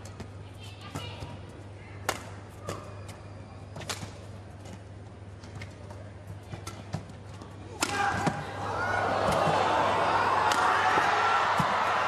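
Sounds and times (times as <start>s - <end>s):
low arena hum: 0.0s - 12.0s
racket hitting shuttlecock: 2.0s - 3.0s, 7.7s - 8.5s, 10.4s - 11.8s.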